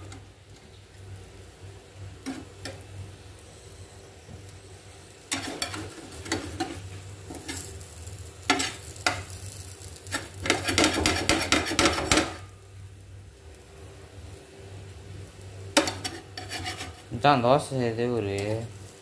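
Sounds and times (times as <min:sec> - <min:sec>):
spatula scraping pan: 0:02.2 - 0:02.8, 0:05.3 - 0:07.8, 0:08.5 - 0:09.4, 0:10.0 - 0:12.4, 0:15.8 - 0:17.1
spatula knocking on pan: 0:10.5 - 0:12.4.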